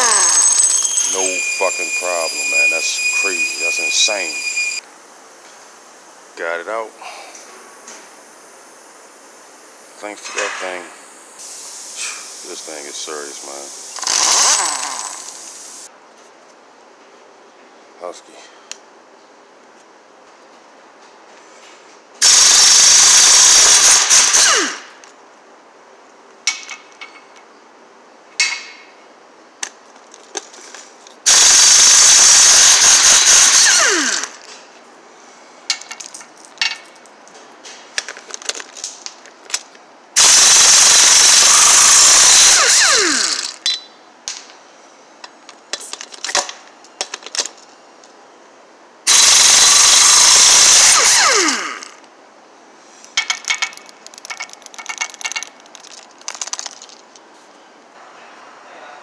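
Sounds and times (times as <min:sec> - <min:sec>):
metal clinks and clicks: 0:00.0 - 0:01.5, 0:53.2 - 0:57.2
air impact wrench hammering: 0:14.0 - 0:15.4, 0:22.2 - 0:24.9, 0:31.3 - 0:34.4, 0:40.2 - 0:43.9, 0:49.1 - 0:52.0.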